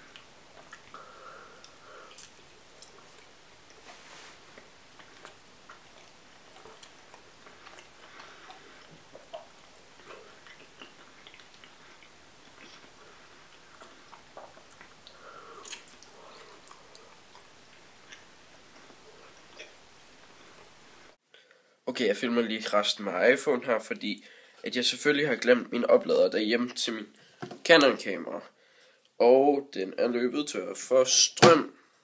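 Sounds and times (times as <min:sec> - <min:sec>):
chewing with wet mouth clicks: 0:00.1 - 0:01.0, 0:01.6 - 0:03.3, 0:04.5 - 0:20.2.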